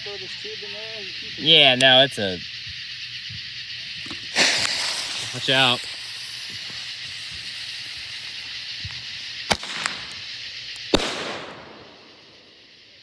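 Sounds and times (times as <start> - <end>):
firework fuse hissing: 0.0 - 13.0
firework sharp cracks: 4.0 - 12.7.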